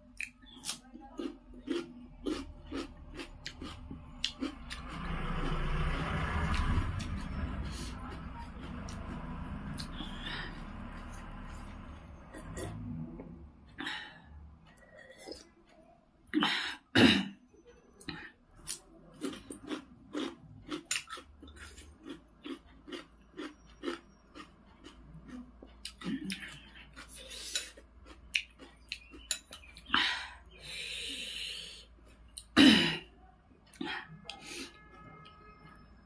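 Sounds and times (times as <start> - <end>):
wet chewing and mouth clicks: 0.1 - 13.0, 18.6 - 30.0.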